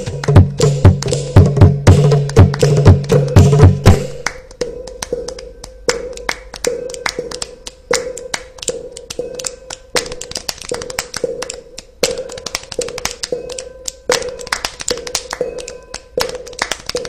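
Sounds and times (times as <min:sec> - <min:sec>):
low drum beat: 0:00.0 - 0:05.3.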